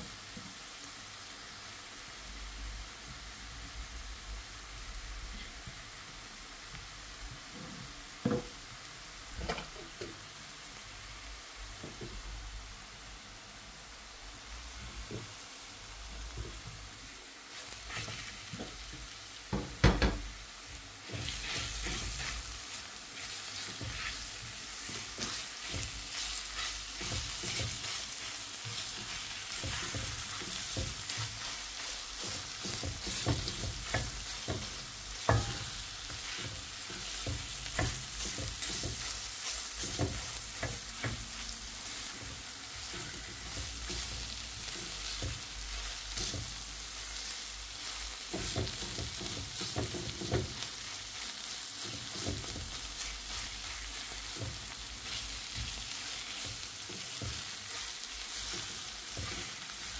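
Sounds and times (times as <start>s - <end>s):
food sizzling in frying pan: 0.0s - 59.9s
spatula scraping pan: 17.5s - 18.9s, 21.0s - 59.9s.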